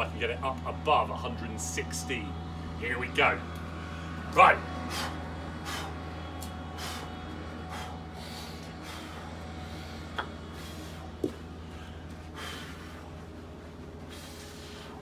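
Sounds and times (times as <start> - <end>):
steady low hum: 0.0 - 15.0
man breathing rapidly: 3.8 - 15.0.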